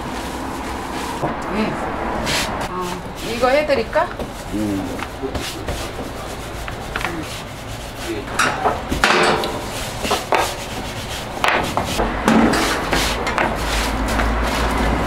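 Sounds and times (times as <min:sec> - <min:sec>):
metal lid clanking shut: 0:08.4 - 0:09.8.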